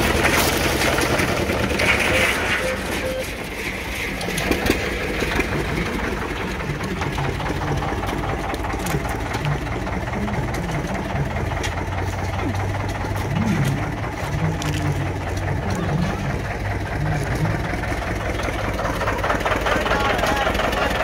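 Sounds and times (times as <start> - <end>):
engine idling with mechanical clatter: 0.0 - 21.0.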